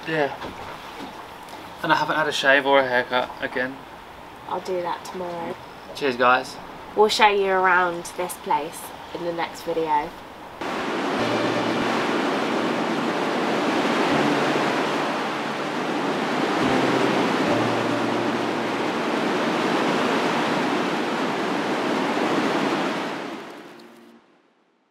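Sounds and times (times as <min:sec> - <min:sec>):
sea waves and surf: 0:09.8 - 0:24.2.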